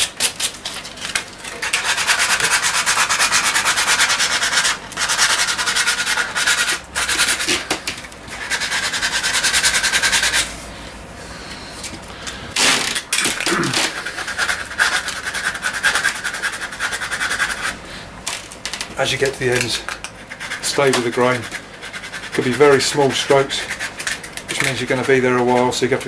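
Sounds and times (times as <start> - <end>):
sandpaper rubbing on wood: 1.6 - 7.7, 8.3 - 10.6, 13.6 - 17.8, 19.0 - 26.0.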